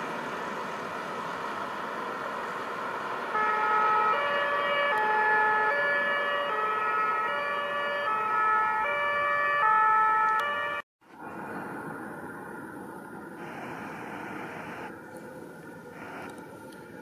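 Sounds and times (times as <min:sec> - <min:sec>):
two-tone emergency siren: 0:03.2 - 0:10.9.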